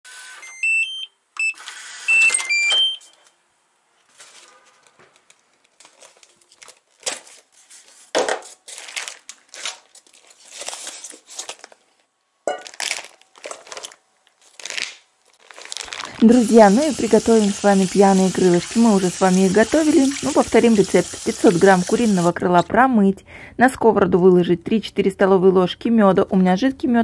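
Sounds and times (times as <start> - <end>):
digital door lock beeping: 0.4 - 3.1
styrofoam box and packaging rustling: 4.0 - 20.6.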